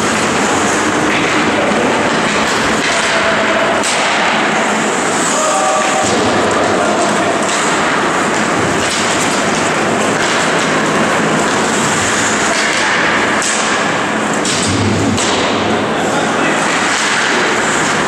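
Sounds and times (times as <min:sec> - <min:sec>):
ice hockey game din: 0:00.0 - 0:18.0
indistinct voices: 0:00.6 - 0:08.8.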